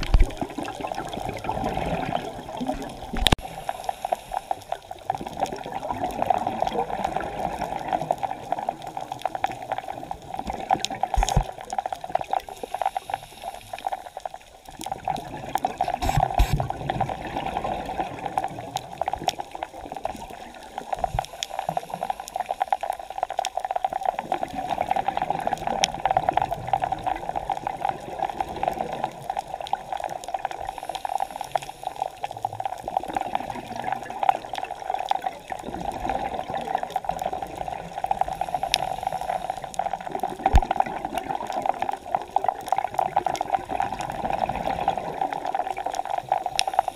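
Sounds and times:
crackling clicks: 0:00.0 - 0:17.1, 0:18.0 - 0:46.9
muffled underwater rush: 0:00.0 - 0:22.5.

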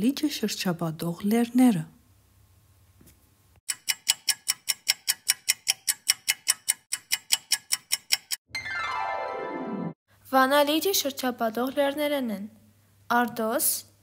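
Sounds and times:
countdown clock ticking: 0:03.7 - 0:08.4
falling tone: 0:08.5 - 0:10.0.

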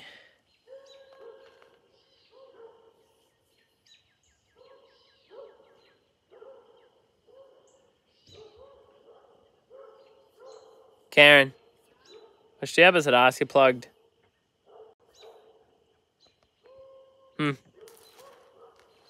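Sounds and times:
birds chirping: 0:00.0 - 0:19.0
dogs barking: 0:00.6 - 0:03.2, 0:04.6 - 0:12.6, 0:13.9 - 0:15.8, 0:16.6 - 0:19.0.

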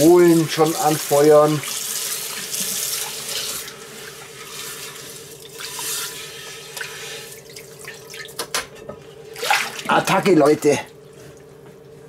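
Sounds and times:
water splashing and dripping: 0:09.4 - 0:09.9.

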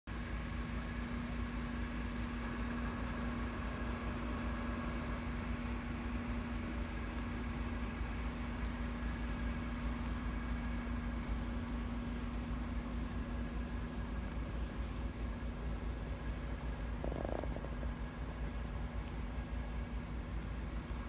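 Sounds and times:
car engine idling: 0:00.1 - 0:21.0.

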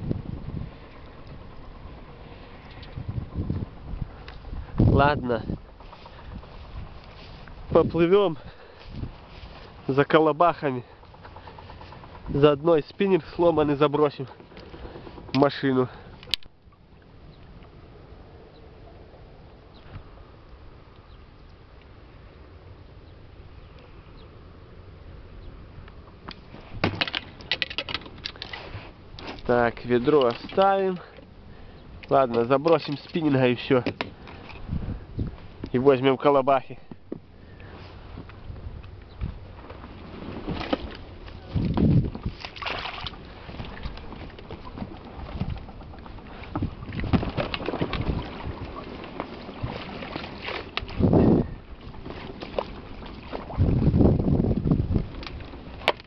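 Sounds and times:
gear clattering in inflatable boat: 0:00.0 - 0:16.5, 0:26.0 - 0:56.0
fishing rods knocking together: 0:26.3 - 0:28.6.

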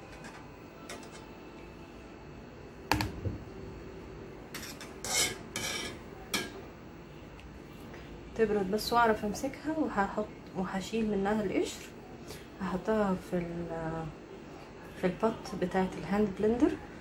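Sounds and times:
utensils and cookware clinking: 0:04.5 - 0:06.6.

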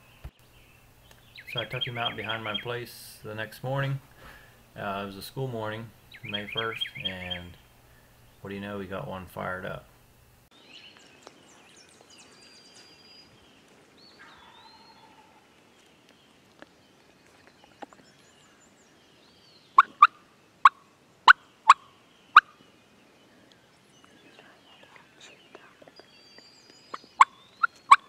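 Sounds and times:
faint songbird chirps: 0:00.0 - 0:09.8, 0:10.5 - 0:28.0
turkey clucks: 0:01.4 - 0:03.4, 0:06.1 - 0:07.6, 0:19.8 - 0:22.5, 0:27.2 - 0:28.0.

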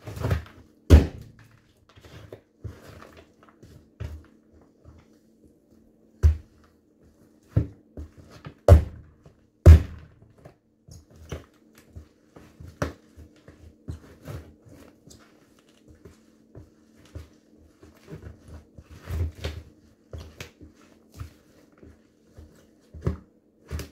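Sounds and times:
sneakers stomping on pumpkin: 0:00.9 - 0:01.5, 0:08.7 - 0:10.2.

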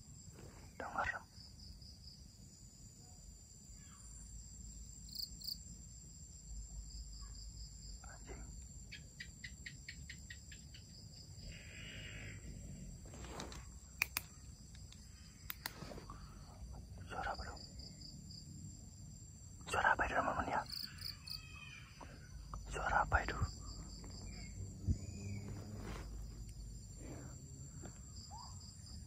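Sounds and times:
crickets and night insects calling: 0:00.0 - 0:29.0
sharp clicks: 0:14.0 - 0:15.8.

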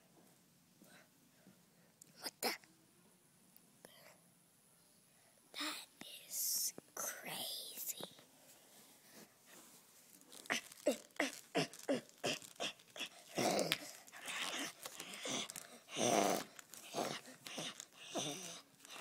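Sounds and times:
voice growling and snarling: 0:10.5 - 0:19.0.

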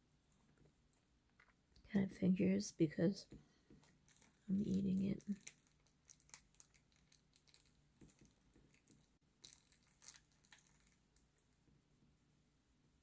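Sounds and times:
person chewing: 0:03.8 - 0:11.0.

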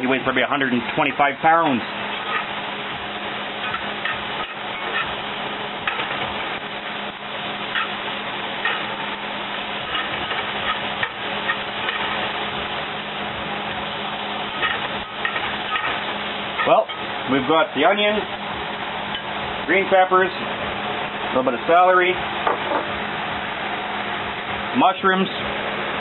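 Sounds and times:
vegetables sizzling in skillet: 0:01.7 - 0:21.3
spatula scraping: 0:02.1 - 0:02.6, 0:03.6 - 0:06.6, 0:07.6 - 0:12.6, 0:14.4 - 0:17.1.

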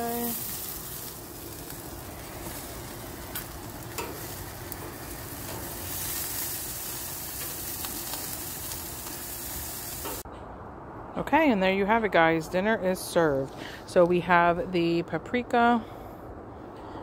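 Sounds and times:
food sizzling on grill: 0:00.0 - 0:10.2
metal tongs clicking on grill: 0:03.2 - 0:06.4, 0:07.3 - 0:09.2.

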